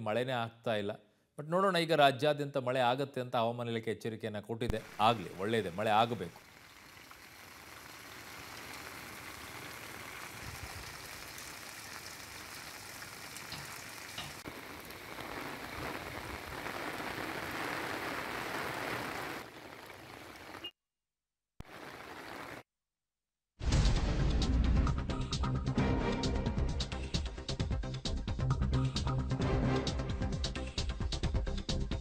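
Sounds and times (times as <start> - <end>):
steady rain: 4.7 - 20.7, 21.6 - 22.6.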